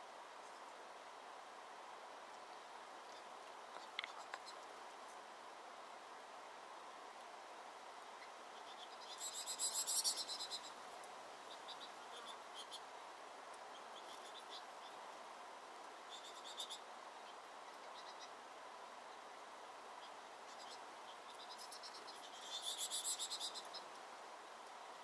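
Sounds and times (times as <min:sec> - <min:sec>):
faint steady background noise: 0:00.0 - 0:25.0
finches chirping and trilling: 0:08.2 - 0:10.8, 0:16.0 - 0:18.4, 0:20.0 - 0:23.9.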